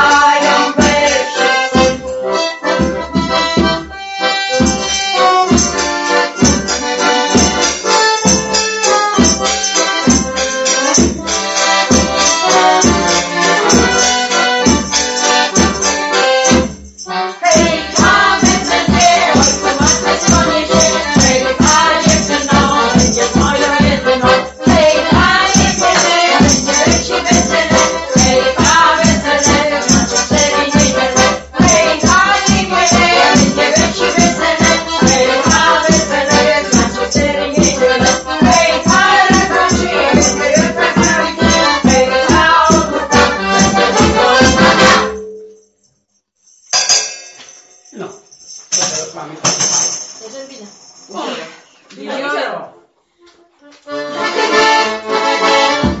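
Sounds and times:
voices singing: 0.0s - 2.8s, 17.1s - 45.0s
accordion folk tune: 0.0s - 45.4s, 53.0s - 56.0s.

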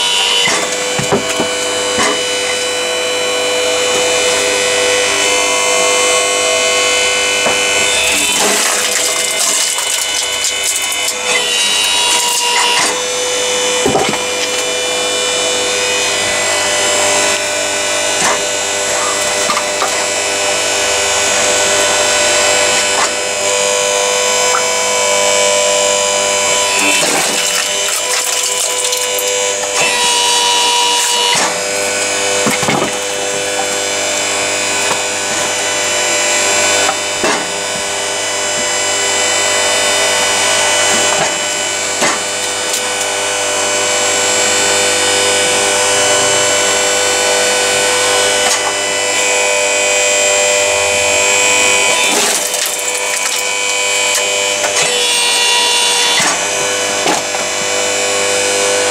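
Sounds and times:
log splitter motor and pump: 0.0s - 58.9s
wood cracking: 8.0s - 11.2s, 26.8s - 29.4s, 52.0s - 54.3s.

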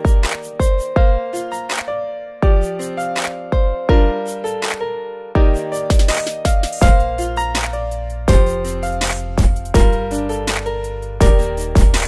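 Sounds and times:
deep bass hits: 6.8s - 10.6s, 11.2s - 12.0s.

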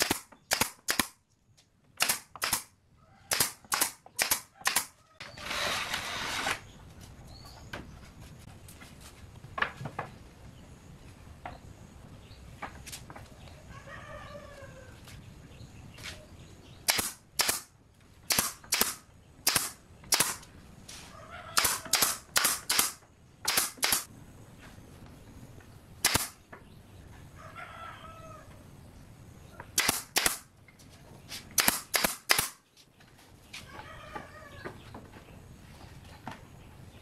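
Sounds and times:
nail gun firing into wood: 0.0s - 1.2s, 2.0s - 2.7s, 3.3s - 4.9s, 16.9s - 17.7s, 18.3s - 20.4s, 21.6s - 24.1s, 26.0s - 26.4s, 29.8s - 30.5s, 31.6s - 32.6s.

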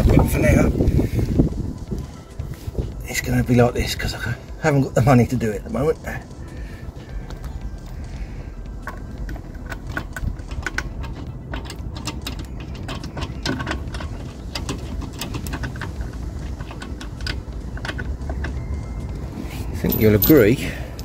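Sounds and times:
low steady rumble: 0.0s - 21.0s
metallic clicks of wheel nut turning: 7.2s - 21.0s.

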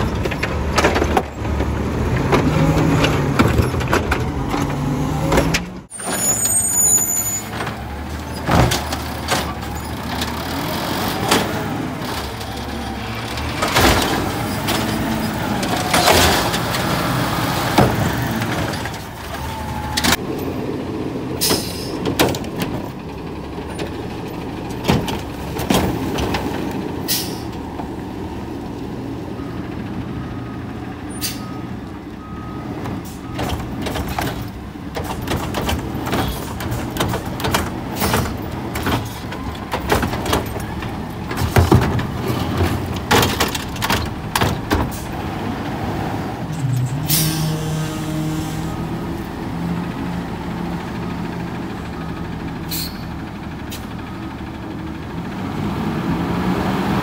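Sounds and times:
clunks and bangs of carts: 0.0s - 20.6s, 21.2s - 28.5s, 31.0s - 47.6s
garbage truck diesel engine: 0.0s - 57.0s.

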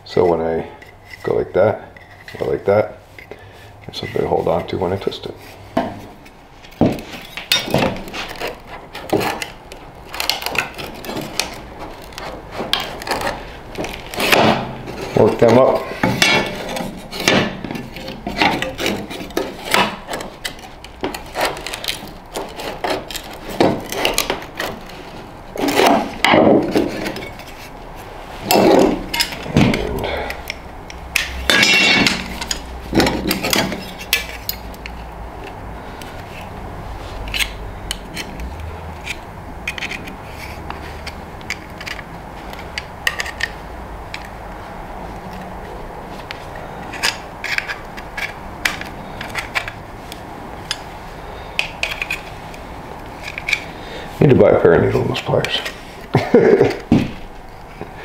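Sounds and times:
metal scraping: 0.6s - 44.3s.

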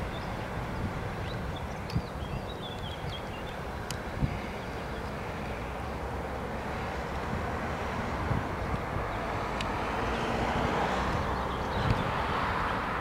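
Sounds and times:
small birds chirping: 0.0s - 6.0s, 11.2s - 12.9s.

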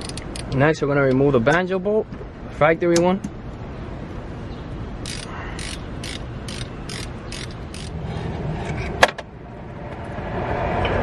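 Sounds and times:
ratchet wrench clicking: 0.0s - 0.6s, 5.0s - 8.0s.

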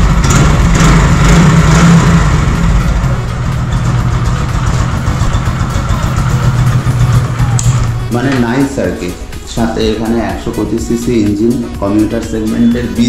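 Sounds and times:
motorcycle engine idling: 0.0s - 8.8s.

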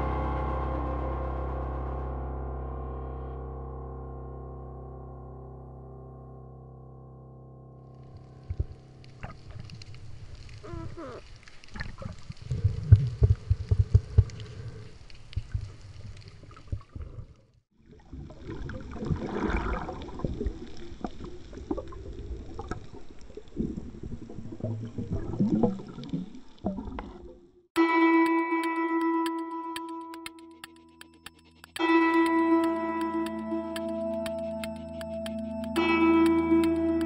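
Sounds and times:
water rushing and bubbling underwater: 8.0s - 27.7s.

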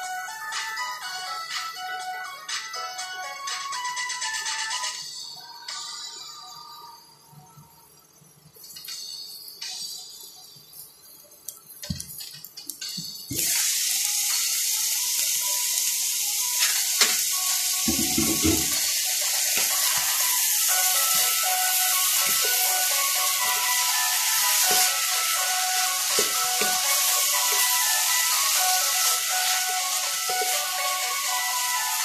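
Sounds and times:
food sizzling in a wok: 13.3s - 32.0s.

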